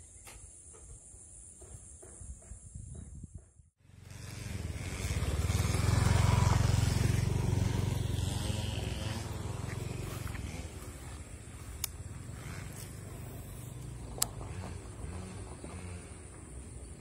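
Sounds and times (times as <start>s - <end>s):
vehicle engine passing by: 3.8s - 17.0s.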